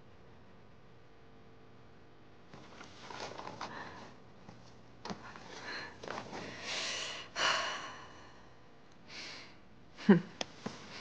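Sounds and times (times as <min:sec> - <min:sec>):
woman breathing heavily: 0:03.5 - 0:04.2, 0:05.1 - 0:11.0.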